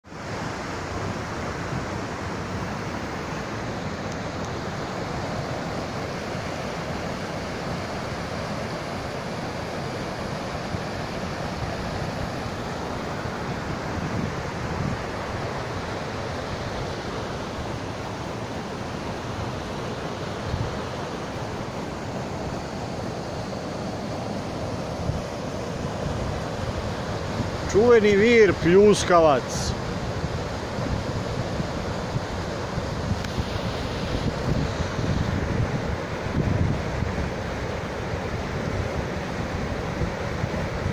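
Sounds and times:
stream running over rocks: 0.1s - 40.9s.

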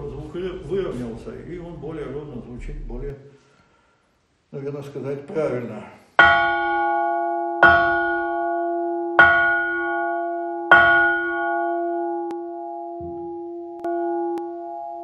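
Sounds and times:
church bell struck with mallet: 6.2s - 15.0s.

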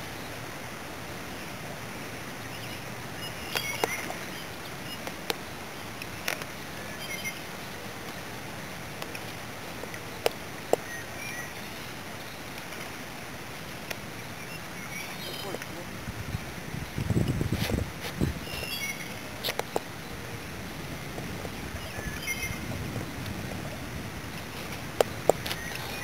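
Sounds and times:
creek water flowing: 0.0s - 26.0s
bird chirps: 18.4s - 19.2s, 21.7s - 22.7s.

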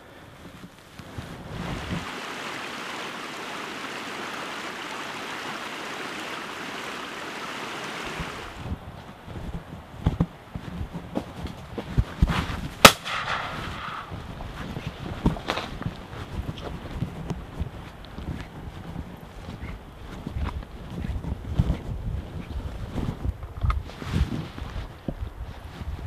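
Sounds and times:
steady rushing noise: 0.0s - 19.2s
footsteps on dirt path: 0.4s - 26.0s.

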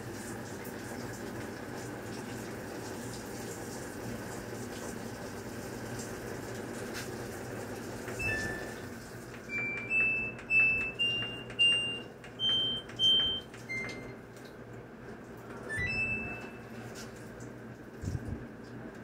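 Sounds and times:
washing machine panel beeps: 8.0s - 14.3s, 15.6s - 17.0s
short rising chime: 15.7s - 16.7s.

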